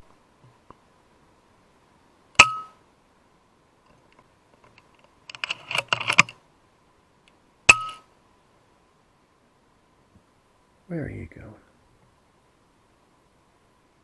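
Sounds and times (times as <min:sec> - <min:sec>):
metallic clicks and clacks: 0:04.6 - 0:06.4.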